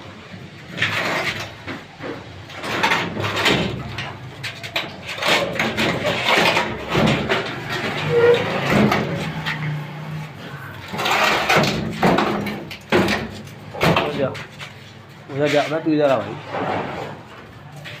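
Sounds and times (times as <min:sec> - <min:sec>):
sheet metal scraping on floor: 0:05.0 - 0:12.6, 0:15.4 - 0:17.4.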